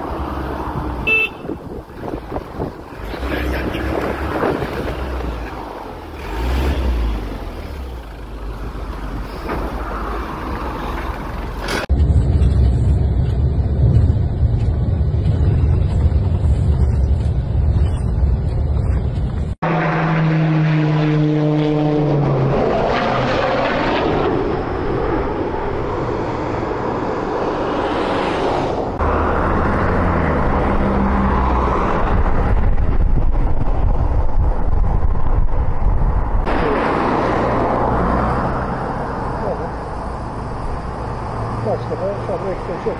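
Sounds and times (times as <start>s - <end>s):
highway traffic: 0.0s - 42.9s
wind rumble: 0.0s - 42.9s
propeller aircraft drone: 11.3s - 42.9s.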